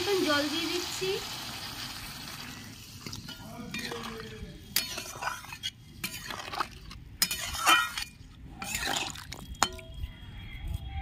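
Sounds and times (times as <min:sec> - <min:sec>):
metal spatula scraping pan: 0:03.0 - 0:09.8.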